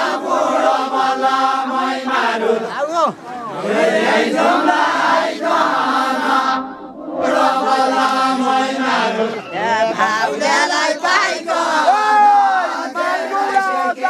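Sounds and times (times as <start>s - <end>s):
men singing folk song together: 3.5s - 14.0s.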